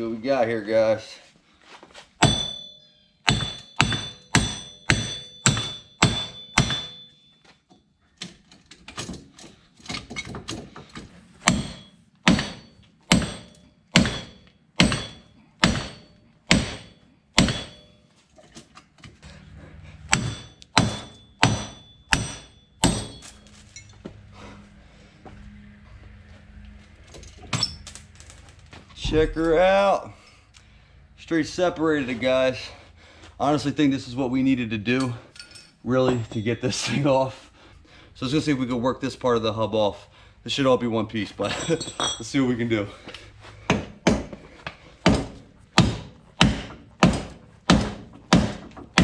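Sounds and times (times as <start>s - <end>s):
mallet hammering metal: 2.2s - 7.2s, 11.4s - 18.0s, 20.1s - 23.4s, 45.0s - 49.0s.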